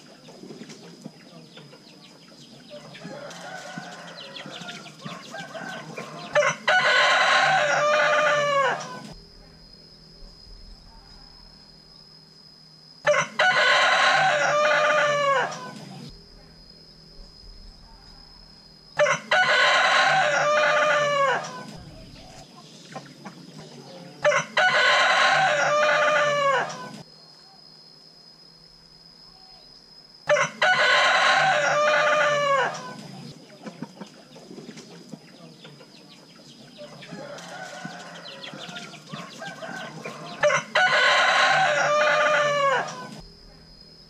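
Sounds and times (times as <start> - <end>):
faint steady high whine: 0.0 - 44.0
rooster crowing: 2.7 - 9.2, 13.0 - 16.1, 19.0 - 22.5, 23.9 - 27.0, 30.3 - 33.2, 36.8 - 43.2.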